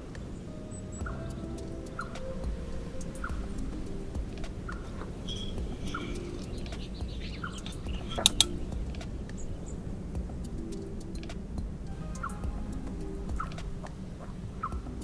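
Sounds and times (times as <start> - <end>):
small birds chirping: 0.0 - 15.0
metal spoon clinking on pot: 5.3 - 6.7.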